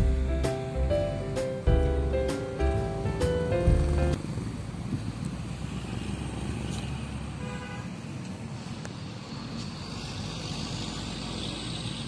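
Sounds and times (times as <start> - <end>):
road traffic rumble: 0.0 - 12.0
vehicle horn toot: 7.4 - 7.9.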